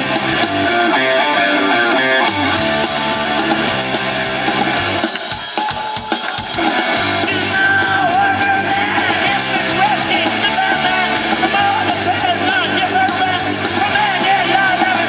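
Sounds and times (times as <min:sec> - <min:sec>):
drum kit: 0:00.0 - 0:00.9, 0:02.3 - 0:15.0
rock band playing: 0:00.0 - 0:15.0
man singing: 0:05.2 - 0:15.0.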